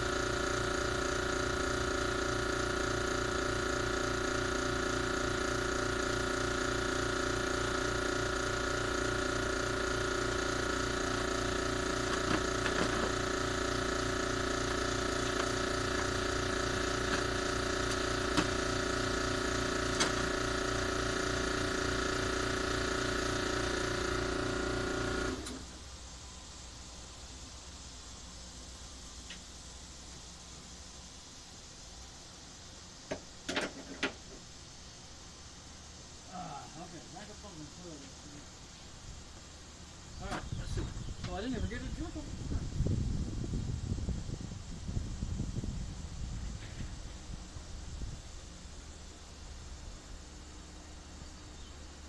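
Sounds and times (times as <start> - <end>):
motor-driven machine running: 0.0 - 27.4
faint hiss: 25.2 - 52.0.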